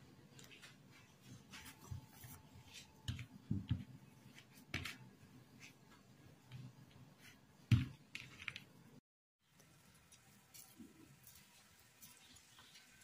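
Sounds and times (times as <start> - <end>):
dough being kneaded by hand: 0.2 - 8.8.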